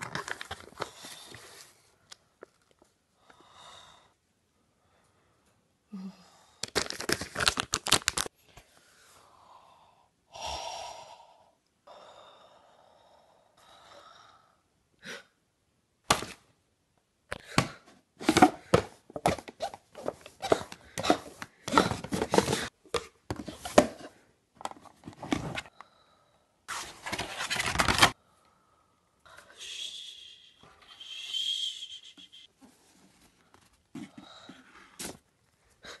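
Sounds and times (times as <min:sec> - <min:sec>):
plastic wrap crinkling: 0:00.0 - 0:00.8, 0:06.6 - 0:08.3.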